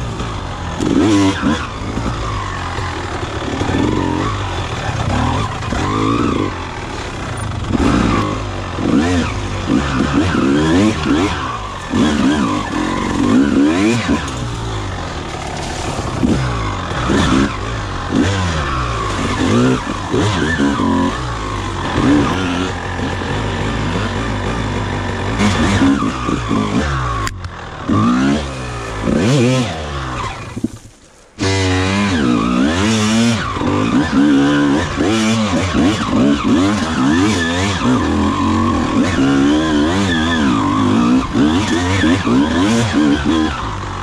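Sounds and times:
dirt bike engine revving: 0.0s - 44.0s.

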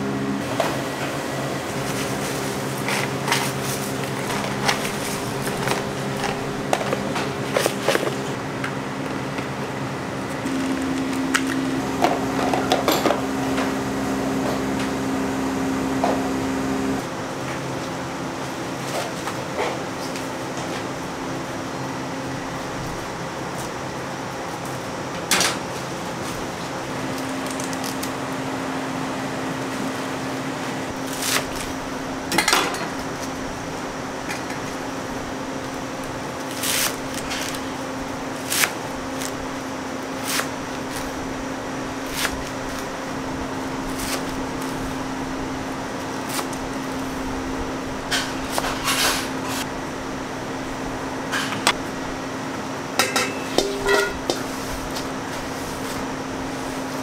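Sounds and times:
knife cutting stalks on board: 31.1s - 31.6s, 36.5s - 37.6s, 38.4s - 39.4s, 40.2s - 41.1s, 42.0s - 42.8s, 43.9s - 44.8s.

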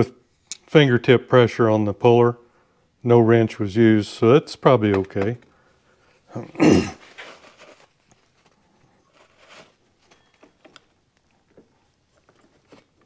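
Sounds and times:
soft rustle: 7.0s - 10.6s, 11.3s - 13.0s.

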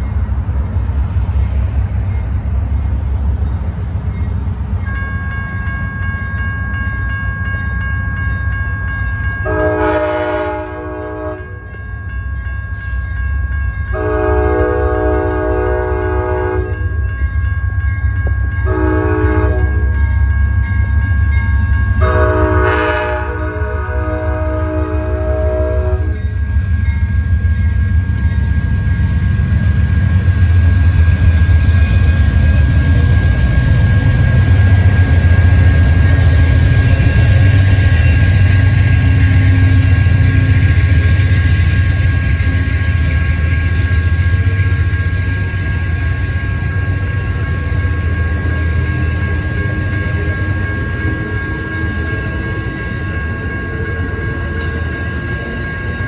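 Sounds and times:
train rumbling past: 0.0s - 56.0s
train horn: 9.4s - 11.8s, 13.9s - 16.8s, 18.6s - 19.9s, 22.0s - 26.2s
steady high tones: 26.0s - 56.0s.

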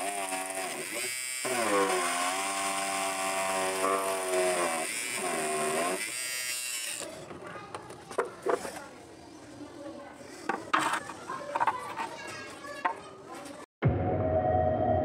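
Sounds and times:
drill motor whining: 0.0s - 7.2s.

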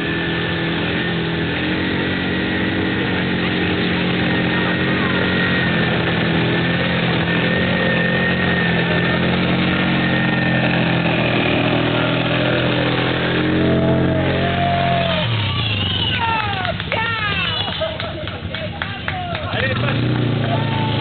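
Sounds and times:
quad engines running at low revs: 0.0s - 21.0s.

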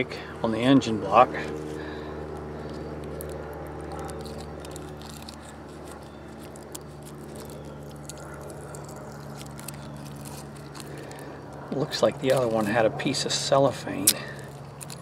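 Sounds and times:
steady low hum: 0.0s - 15.0s
small parts clicking and scraping: 2.7s - 12.8s, 14.0s - 15.0s
plastic packaging crinkling: 3.0s - 12.8s, 14.0s - 15.0s.

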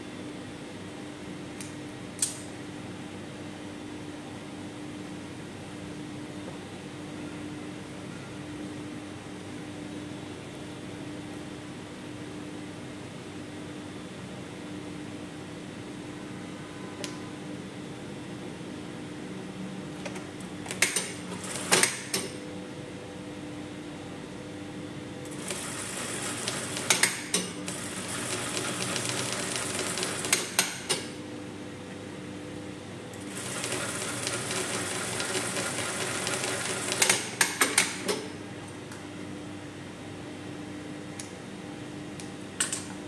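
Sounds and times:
sewing machine stitching: 27.7s - 30.6s, 33.3s - 37.4s.

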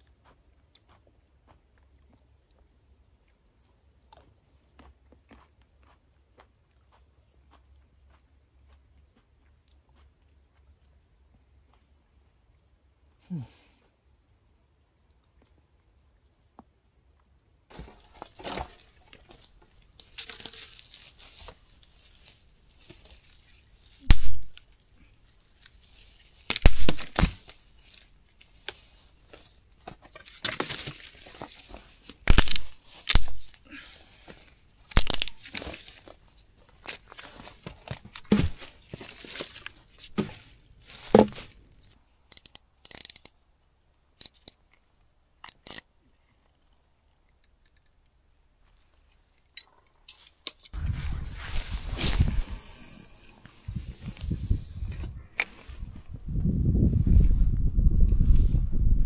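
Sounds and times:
branches snapping: 17.7s - 24.7s, 25.6s - 33.6s, 34.9s - 41.6s
twigs and leaves rustling: 17.7s - 42.0s, 50.1s - 56.2s.

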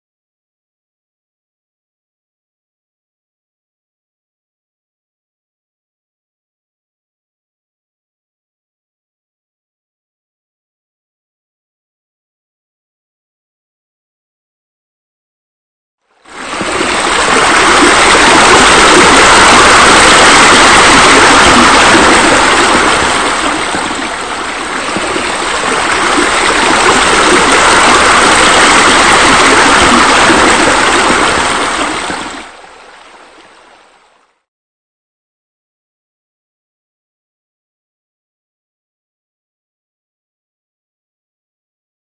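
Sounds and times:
water rushing and splashing: 16.2s - 34.3s.

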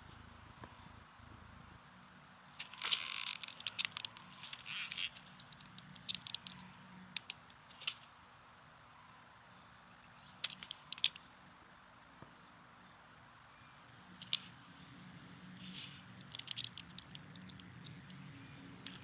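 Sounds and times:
small clicks and ticks: 2.5s - 8.2s, 10.2s - 11.4s, 13.9s - 19.0s.

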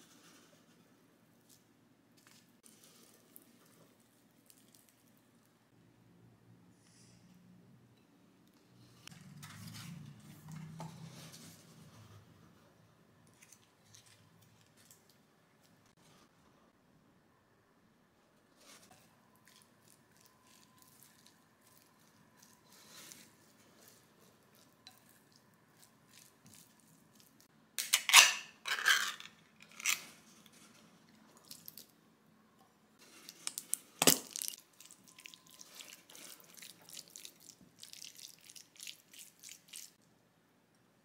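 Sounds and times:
can lid popping and tearing: 27.8s - 30.0s.

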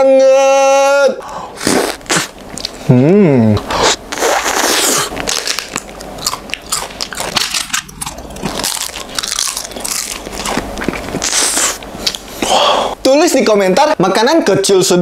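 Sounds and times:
chewing and wet mouth sounds: 1.6s - 2.8s, 3.8s - 12.5s
bites and crunches: 3.6s - 12.3s.

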